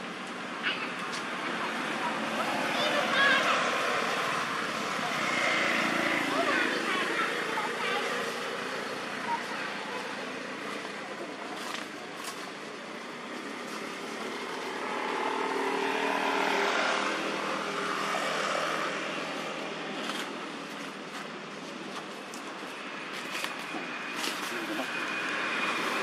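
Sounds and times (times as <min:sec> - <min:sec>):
vehicle passing on road: 0:01.2 - 0:26.0.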